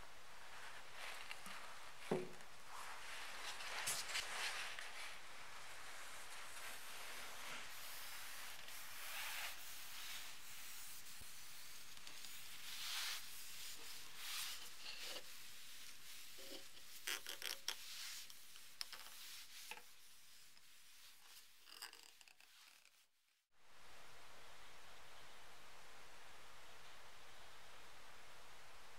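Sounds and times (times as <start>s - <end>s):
pad rubbing on wood: 7.6s - 21.5s.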